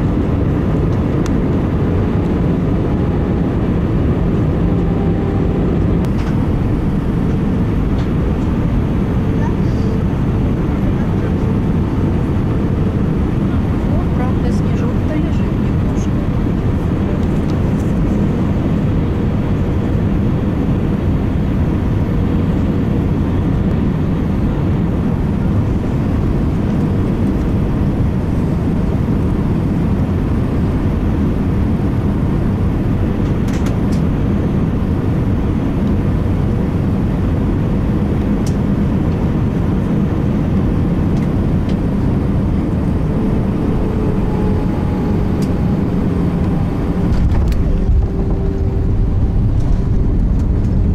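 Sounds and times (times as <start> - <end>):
jet engines rumbling: 0.0 - 50.9
faint rising whine: 2.3 - 17.1, 41.8 - 50.9.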